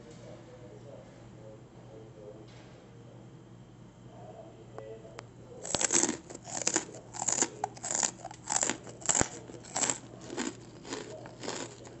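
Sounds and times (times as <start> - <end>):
crunchy snack being chewed: 5.6 - 12.0.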